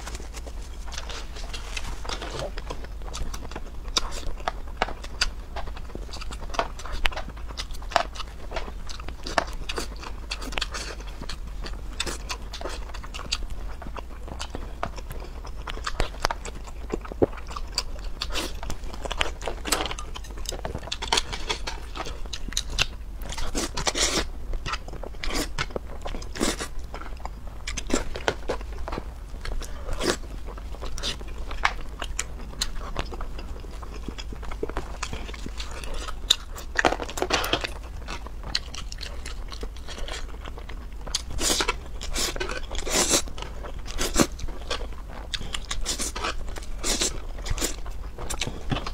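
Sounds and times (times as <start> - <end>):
person chewing: 0.0 - 48.9
slurping noodles: 41.4 - 43.3.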